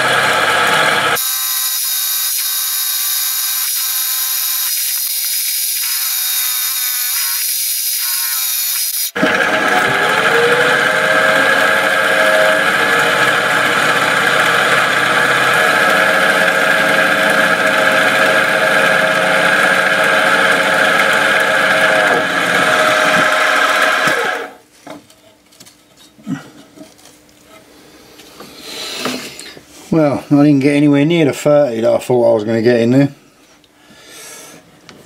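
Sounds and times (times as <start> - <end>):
mill drill motor running: 0.0 - 24.6.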